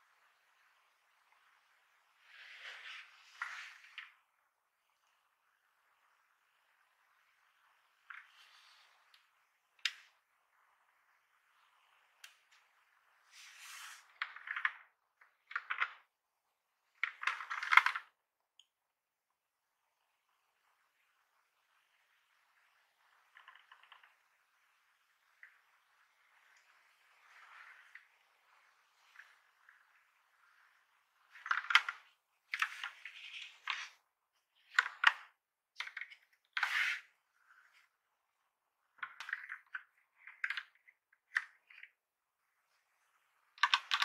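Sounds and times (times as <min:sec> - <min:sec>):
keyboard plastic clicks and clatter: 0:14.2 - 0:16.1, 0:17.0 - 0:18.2, 0:31.3 - 0:34.0, 0:34.6 - 0:36.9, 0:38.9 - 0:42.0, 0:43.6 - 0:44.0
keyboard plastic clicks and knocks: 0:43.6 - 0:44.0.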